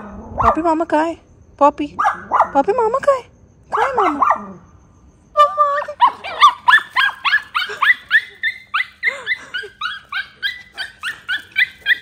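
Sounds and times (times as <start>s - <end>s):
dog whining and yelping: 6.0s - 12.0s.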